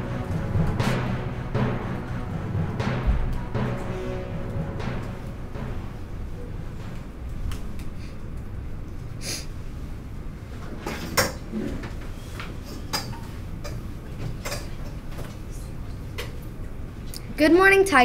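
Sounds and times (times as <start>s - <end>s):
low steady rumble: 0.0s - 10.5s.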